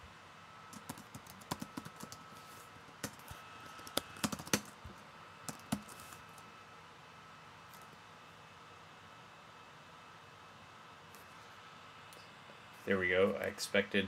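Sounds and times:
keyboard typing clicks: 3.8s - 4.7s.

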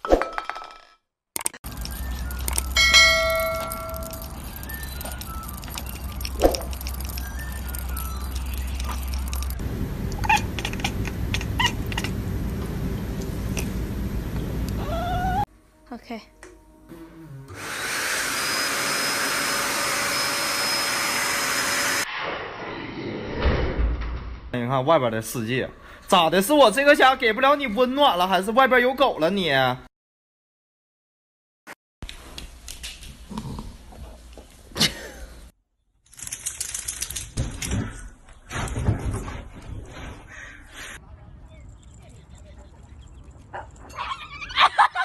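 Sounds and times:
vacuum cleaner motor running: 17.5s - 22.0s.

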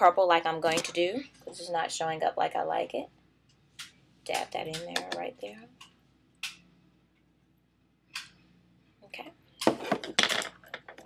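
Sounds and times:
makeup palette and tools clattering: 9.6s - 11.0s.

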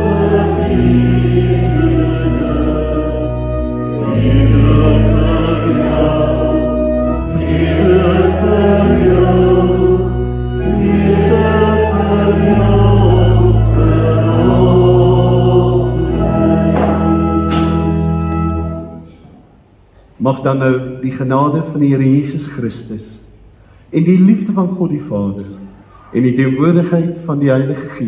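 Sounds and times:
congregation singing a hymn: 0.0s - 19.1s
church organ: 0.0s - 19.7s, 24.0s - 28.0s.

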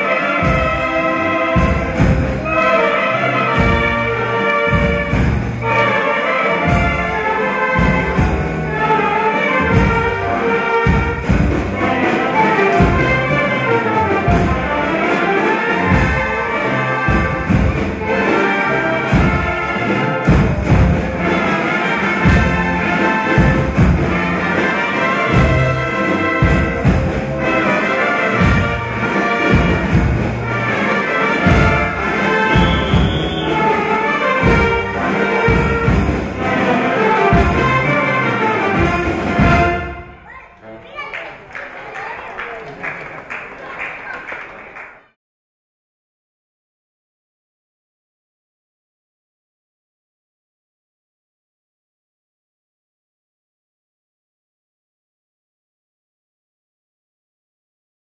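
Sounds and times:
horns and tubas: 0.0s - 45.0s
bass drum beat: 31.5s - 33.6s.

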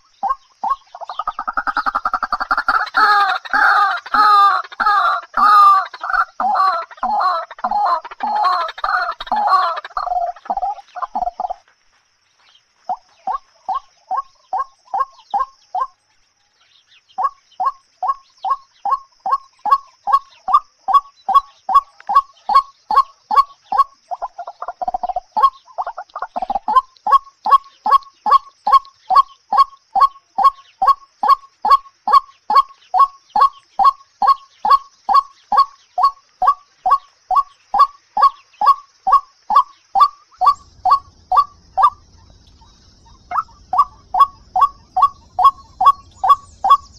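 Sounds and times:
waterhen calling repeated notes: 0.0s - 11.7s, 12.8s - 16.1s, 17.1s - 46.9s
lower rough bird call: 26.4s - 46.9s.

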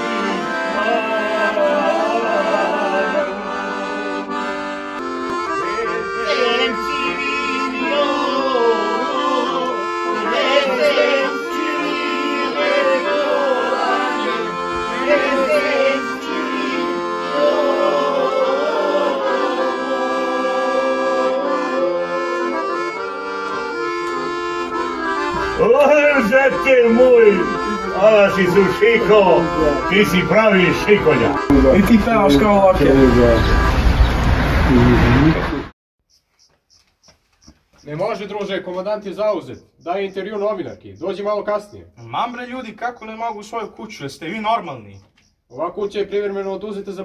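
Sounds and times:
accordion playing folk tune: 0.0s - 34.7s.

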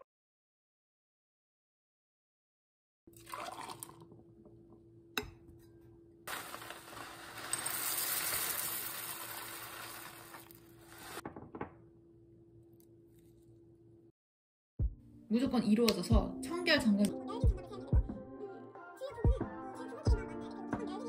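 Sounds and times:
milk pouring: 3.1s - 4.2s, 6.3s - 11.2s
cereal flakes pouring into mug: 6.3s - 11.2s
plastic bag rustling: 6.3s - 11.2s.

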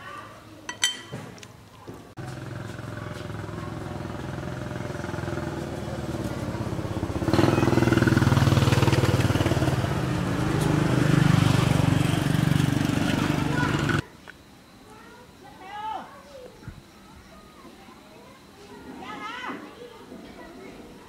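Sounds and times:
motorcycle engine running: 2.2s - 14.0s.

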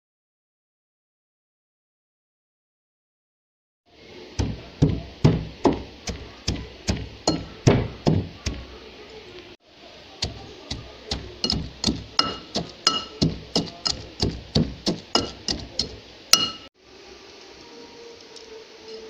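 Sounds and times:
pestle pounding in a mortar: 4.4s - 8.7s, 10.2s - 16.7s.

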